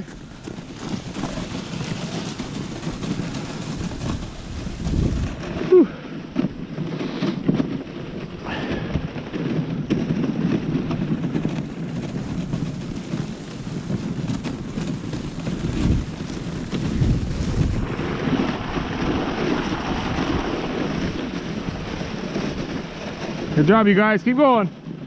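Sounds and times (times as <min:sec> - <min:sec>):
sled runners hissing over snow: 0:00.0 - 0:25.0
wind rumbling on microphone: 0:00.0 - 0:25.0.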